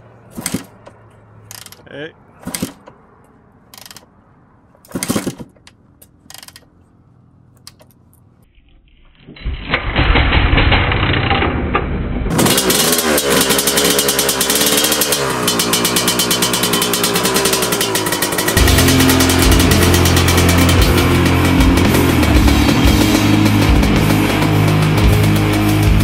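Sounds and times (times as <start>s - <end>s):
two-stroke engine revving: 0.3s - 0.9s, 2.4s - 2.9s, 12.3s - 26.0s
motorcycle kick-start: 0.3s - 1.8s, 2.4s - 2.9s, 3.7s - 4.1s, 4.8s - 5.7s, 6.3s - 6.6s, 12.3s - 21.9s.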